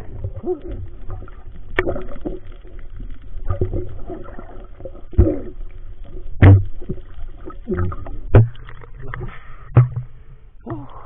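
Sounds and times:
underwater water bubbling: 0.0 - 11.0.

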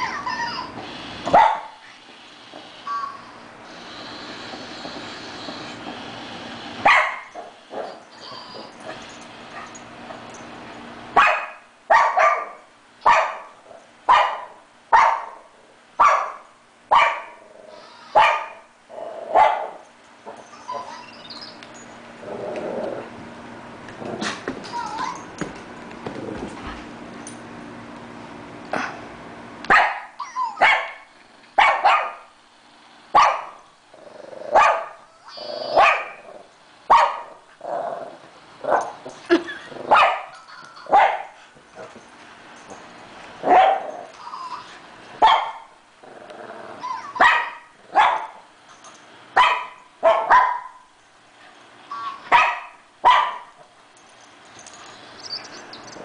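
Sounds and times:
dog barking: 1.3 - 1.8, 6.8 - 7.3, 11.2 - 13.5, 14.1 - 15.4, 16.0 - 17.4, 18.2 - 18.6, 19.4 - 19.8, 29.7 - 31.0, 31.6 - 32.2, 33.2 - 33.6, 34.6 - 34.9, 35.8 - 36.2, 36.9 - 37.3, 39.9 - 41.3, 43.5 - 43.9, 45.2 - 45.6, 47.2 - 48.4, 49.4 - 50.8, 52.3 - 53.5.

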